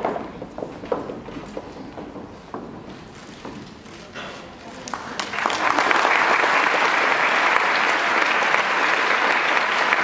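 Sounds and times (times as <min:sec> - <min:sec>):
audience clapping: 0:04.6 - 0:10.0.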